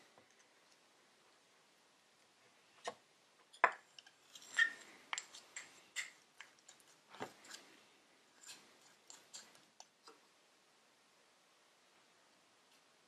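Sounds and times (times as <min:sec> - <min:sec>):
metal knife scraping glass jar: 0:04.2 - 0:05.4.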